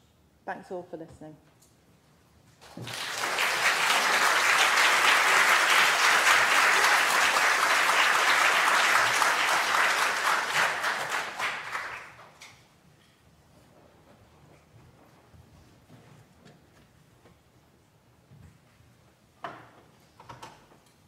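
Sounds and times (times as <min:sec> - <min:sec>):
audience applauding: 0:02.6 - 0:12.4.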